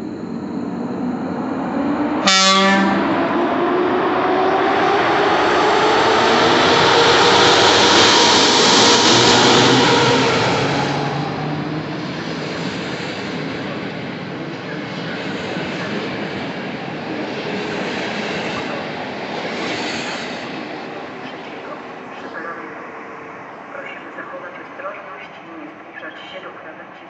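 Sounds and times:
locomotive horn blast: 2.2 - 3.3.

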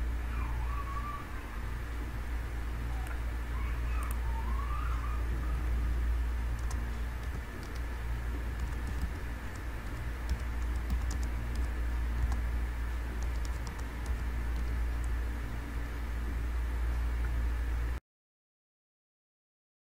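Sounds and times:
steady low hum: 0.0 - 18.0
keyboard key clicks: 10.3 - 12.4.

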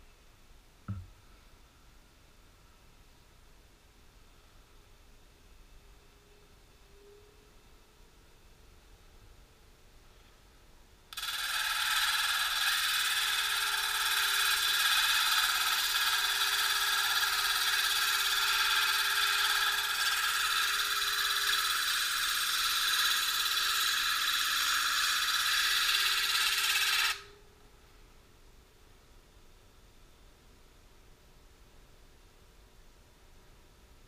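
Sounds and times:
stone grinding on diamond disc: 11.2 - 27.2
faint grinder hum: 11.2 - 27.4.

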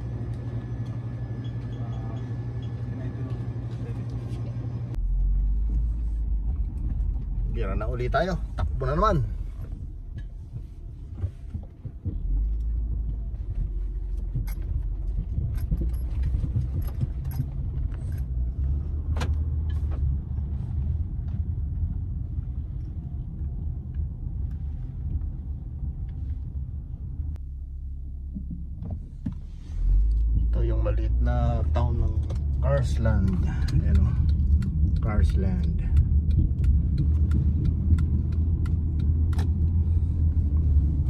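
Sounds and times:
car engine and road noise: 0.0 - 41.0
light clicks and rattles: 9.6 - 20.4.

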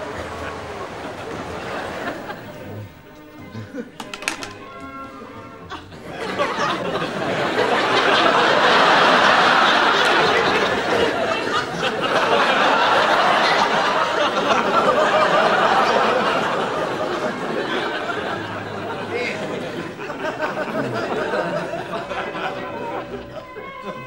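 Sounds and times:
studio audience laughing: 0.0 - 4.5, 5.2 - 24.0.

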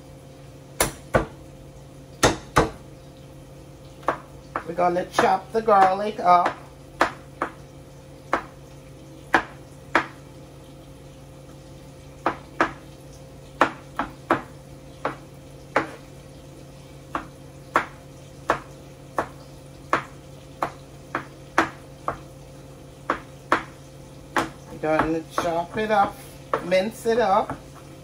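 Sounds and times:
knife chopping on cutting board: 0.8 - 1.4, 2.2 - 2.8, 4.0 - 7.6, 8.3 - 8.6, 9.3 - 10.2, 12.2 - 12.8, 13.6 - 16.0, 17.1 - 22.3, 23.1 - 26.8.

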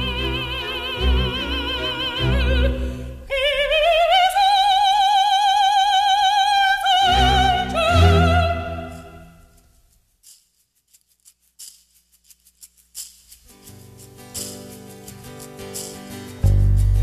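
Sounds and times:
operatic soprano singing: 0.0 - 9.3.

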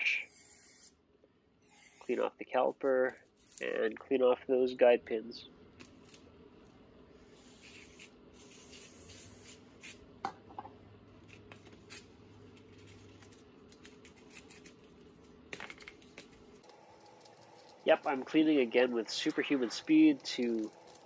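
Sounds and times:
steady low hum: 0.0 - 21.0
metal parts scraping and rubbing: 1.6 - 3.8, 11.2 - 21.0.

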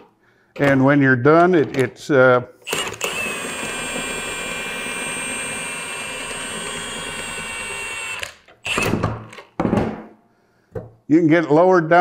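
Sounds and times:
impact wrench motor whine: 2.6 - 9.4.

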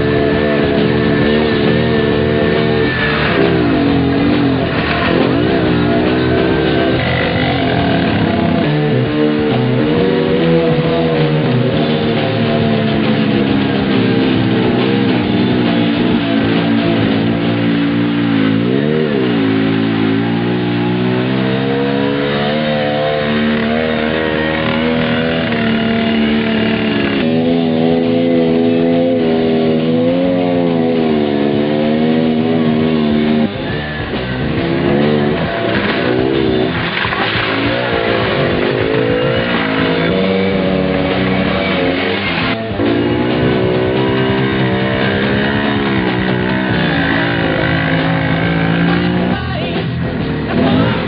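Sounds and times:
off-road vehicle engine revving: 0.0 - 51.0
rock music with guitar: 0.0 - 51.0.

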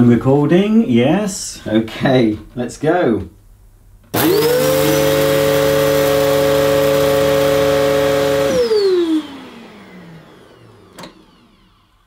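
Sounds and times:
vacuum cleaner whining: 4.1 - 12.0
vacuum motor winding down: 4.1 - 12.0.

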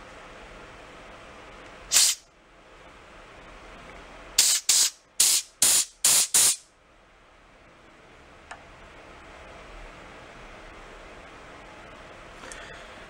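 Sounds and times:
air blow gun hissing: 1.9 - 2.2, 4.4 - 6.6.

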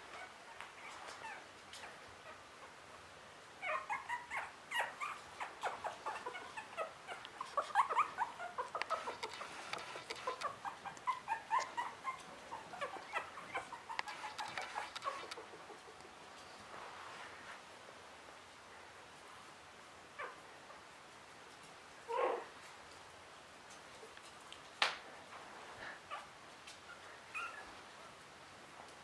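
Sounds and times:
puppies crying: 3.6 - 15.8.

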